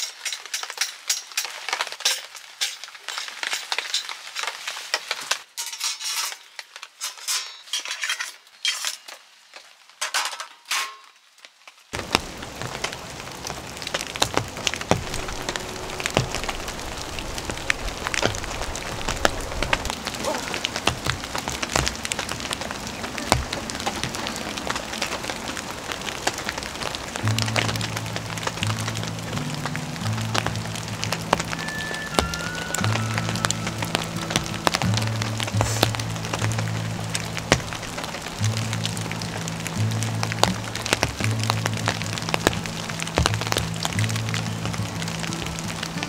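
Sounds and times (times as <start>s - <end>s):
metal tent poles clinking: 0.0s - 9.3s, 10.0s - 11.2s
rain falling on tent: 0.0s - 46.0s.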